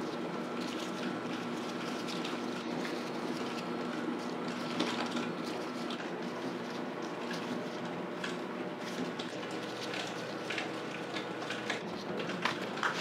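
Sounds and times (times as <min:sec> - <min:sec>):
dough rustling: 0:00.0 - 0:13.0
kitchen equipment humming: 0:00.0 - 0:13.0.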